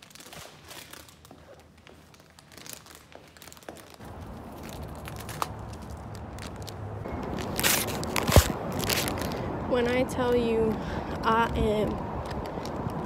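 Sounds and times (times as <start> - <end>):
footsteps: 0.3 - 10.0.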